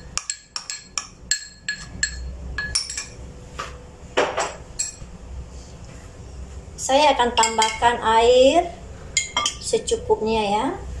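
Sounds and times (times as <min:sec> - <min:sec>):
spoon clinking against bowl: 0:00.0 - 0:03.2, 0:04.8 - 0:05.0, 0:07.4 - 0:07.8, 0:09.2 - 0:09.6.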